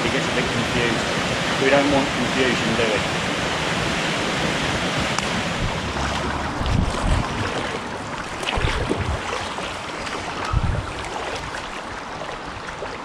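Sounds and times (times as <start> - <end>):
water wash: 0.0 - 13.0
wind noise on microphone: 0.0 - 13.0
paddle strokes in water: 4.1 - 13.0.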